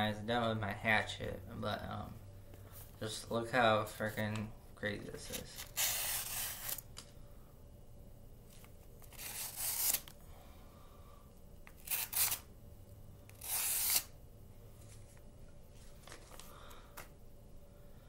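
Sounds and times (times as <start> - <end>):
knife slicing paper: 5.3 - 6.8, 9.1 - 10.1, 11.8 - 12.5, 13.4 - 14.1.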